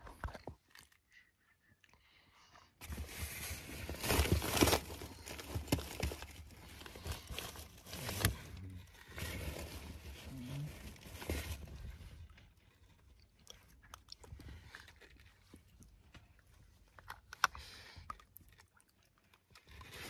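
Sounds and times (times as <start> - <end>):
paper packaging rustling and crinkling: 2.8 - 13.2.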